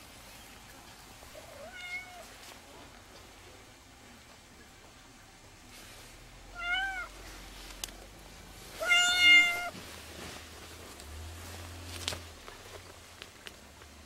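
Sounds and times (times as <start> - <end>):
cat meowing: 1.4 - 2.3, 6.5 - 7.1, 8.8 - 9.8.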